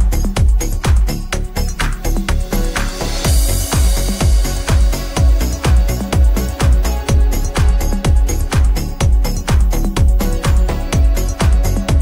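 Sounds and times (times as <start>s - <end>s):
electronic dance music: 0.0s - 12.0s.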